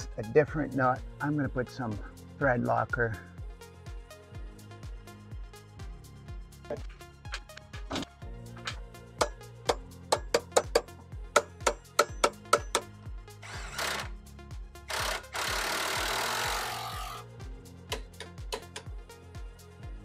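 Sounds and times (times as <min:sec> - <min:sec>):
background music with steady beat: 0:00.0 - 0:20.0
impact wrench running: 0:13.4 - 0:14.2, 0:14.9 - 0:17.2.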